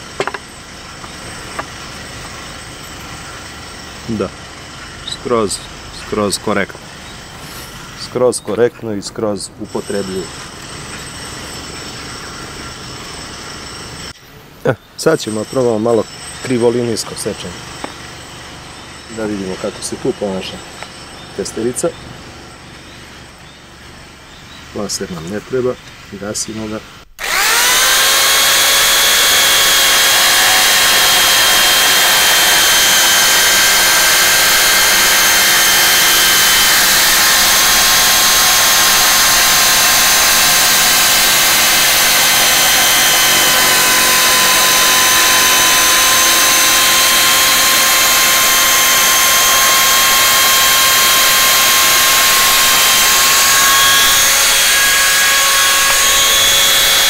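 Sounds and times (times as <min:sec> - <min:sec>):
jigsaw cutting: 0:27.2 - 0:57.0.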